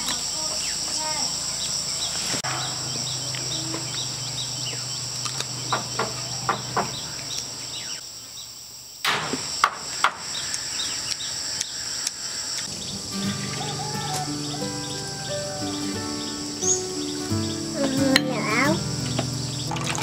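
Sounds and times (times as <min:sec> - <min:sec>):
insect buzz and chirps: 0:00.0 - 0:20.0
sharp knocks: 0:02.4 - 0:07.3, 0:09.0 - 0:10.2
low hum: 0:02.4 - 0:08.0.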